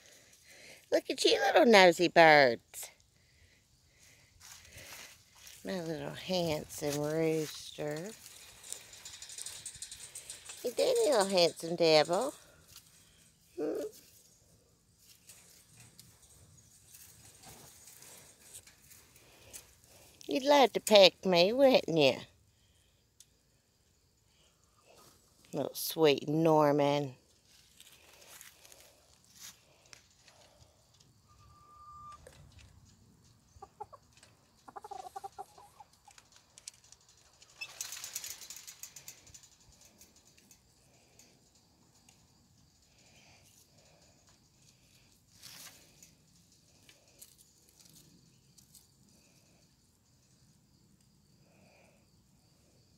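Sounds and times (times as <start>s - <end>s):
chicken clucking: 33.4s - 36.2s.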